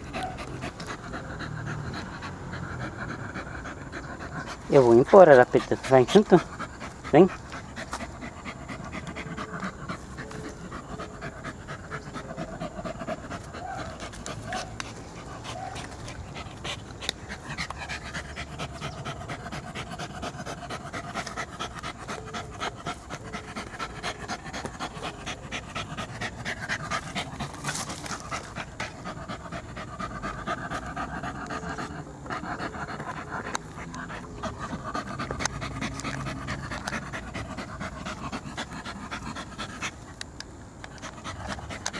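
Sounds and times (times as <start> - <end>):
dog digging in dirt: 0.0 - 41.9
dog panting rapidly: 0.0 - 41.9.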